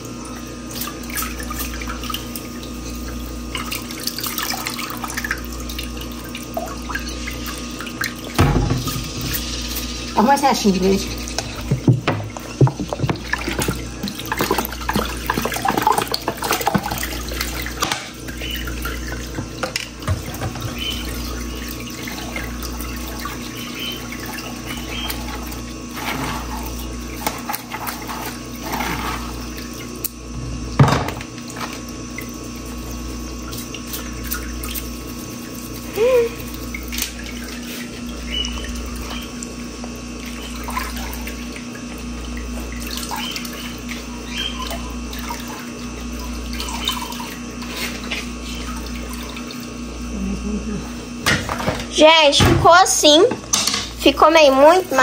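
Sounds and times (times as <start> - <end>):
running water: 0.0 - 55.0
kitchenware clinking and knocking: 30.8 - 31.2.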